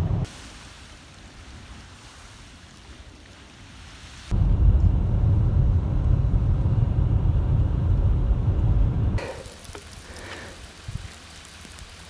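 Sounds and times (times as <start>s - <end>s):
faint steady hiss: 0.2s - 4.4s, 9.2s - 12.0s
vehicle rumbling on snowy road: 4.3s - 12.0s.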